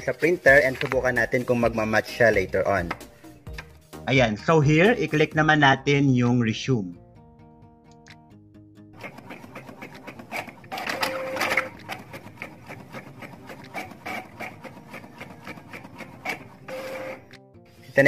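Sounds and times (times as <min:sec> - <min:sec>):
printer clicking and whirring: 0:09.0 - 0:17.4.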